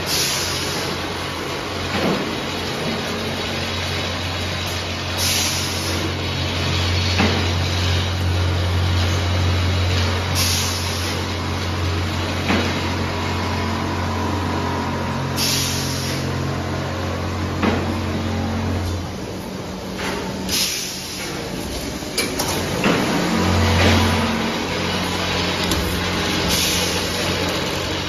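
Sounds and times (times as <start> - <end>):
machine humming: 0.0 - 28.0
short hissing bursts: 15.4 - 16.2.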